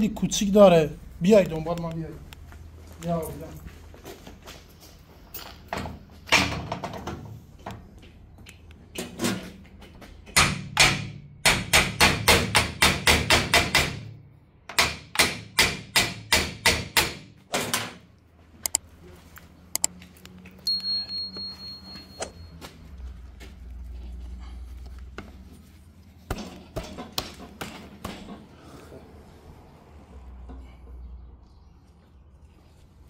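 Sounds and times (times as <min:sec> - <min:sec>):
hammer striking metal: 0:10.3 - 0:14.1, 0:14.7 - 0:17.3
high electronic beep: 0:20.6 - 0:22.6.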